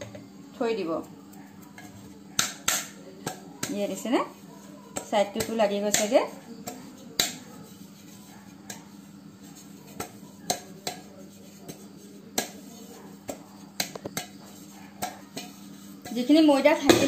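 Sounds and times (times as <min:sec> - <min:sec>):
knocks on aluminium cake pan: 0:16.8 - 0:17.0.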